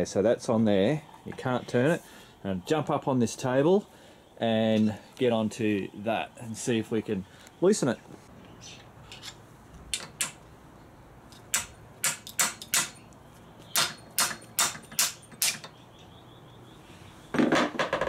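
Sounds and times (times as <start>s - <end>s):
hammer tapping metal: 9.9s - 10.4s, 11.3s - 13.0s, 13.7s - 15.8s.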